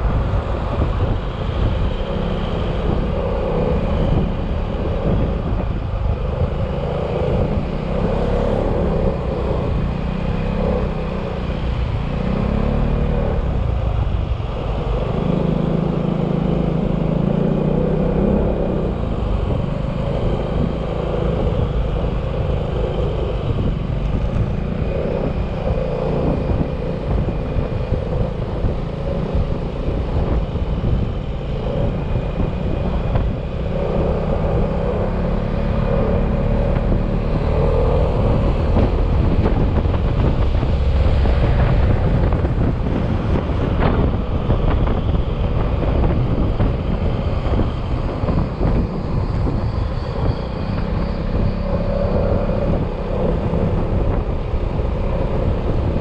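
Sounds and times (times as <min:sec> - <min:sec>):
road and wind noise: 0:00.0 - 0:56.0.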